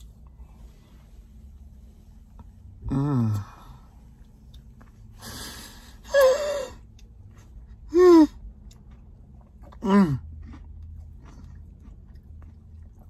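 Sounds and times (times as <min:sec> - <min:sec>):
man moaning with pleasure: 0:02.8 - 0:03.6
man breathing: 0:05.2 - 0:06.8.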